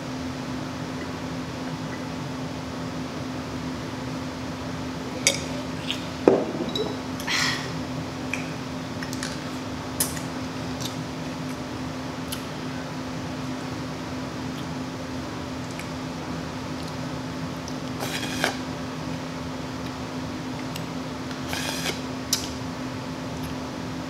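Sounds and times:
fan hum: 0.0s - 24.0s
tableware clinking and knocking: 6.3s - 7.0s.

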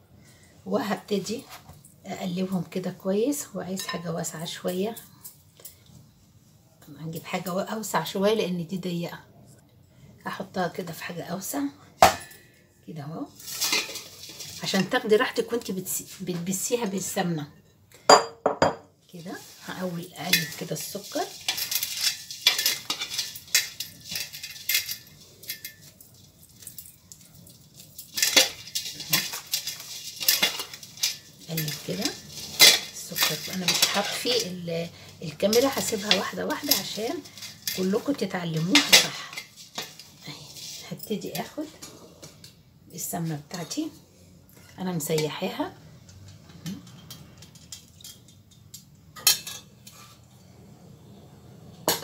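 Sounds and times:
dough rustling in metal bowl: 13.0s - 17.4s, 19.1s - 42.3s
metal bangles clinking: 19.4s - 34.6s.

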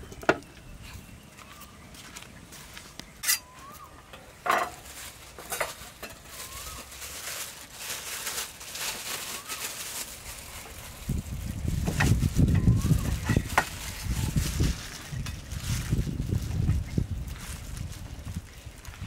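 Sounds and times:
plastic glove crinkling: 4.7s - 19.0s.

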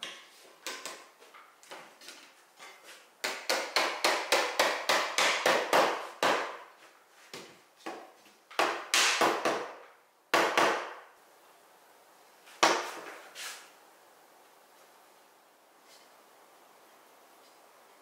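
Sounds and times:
sharp wooden knocks: 3.2s - 6.6s, 7.4s - 11.0s.

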